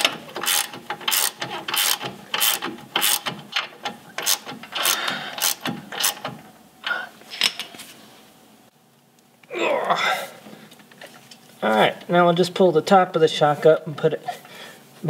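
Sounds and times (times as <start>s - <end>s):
ratchet wrench clicking: 0.4s - 3.4s, 4.2s - 6.3s.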